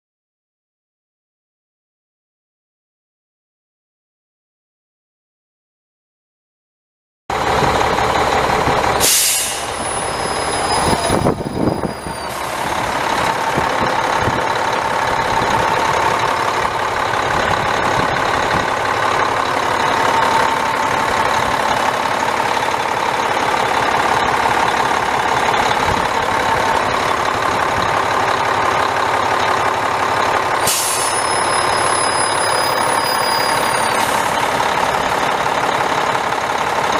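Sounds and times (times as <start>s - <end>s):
diesel truck engine running: 7.3s - 36.9s.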